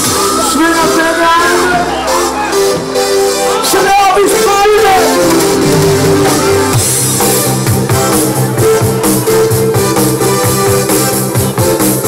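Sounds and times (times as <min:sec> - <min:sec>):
bass line: 0:00.0 - 0:12.0
guitar: 0:00.0 - 0:12.0
steady drum beat: 0:04.2 - 0:12.0.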